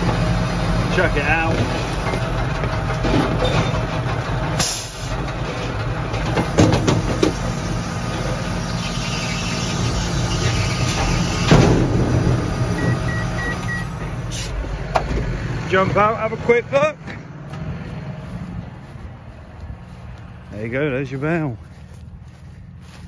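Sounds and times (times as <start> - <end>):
tractor engine running: 0.0 - 23.0
baler tailgate clunks: 1.5 - 7.5, 10.9 - 14.2
short electronic beeps: 12.8 - 13.9.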